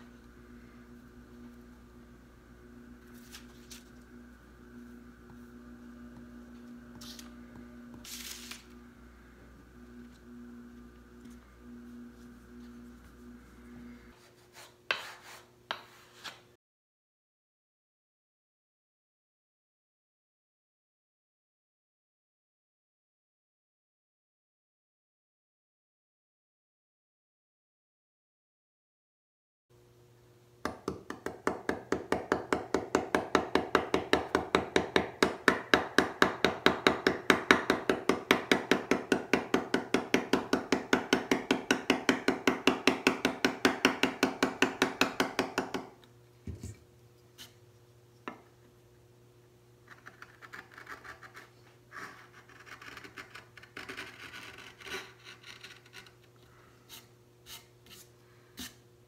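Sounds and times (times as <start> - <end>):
mallet tapping chisel into wood: 30.6 - 45.9
chisel clicks and scrapes: 52.1 - 56.3.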